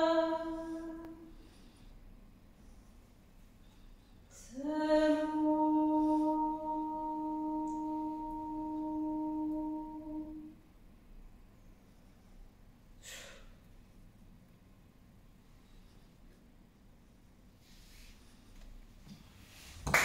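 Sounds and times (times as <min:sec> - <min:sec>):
woman singing unaccompanied: 0:00.0 - 0:01.3, 0:04.4 - 0:10.6.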